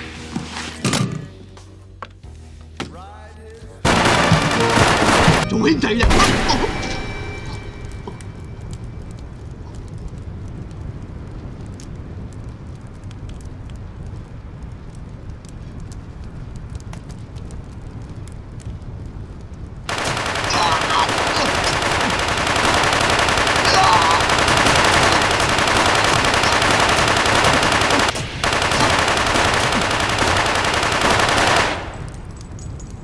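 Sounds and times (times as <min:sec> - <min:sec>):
submachine gun automatic fire: 0:03.9 - 0:05.5, 0:19.9 - 0:32.1.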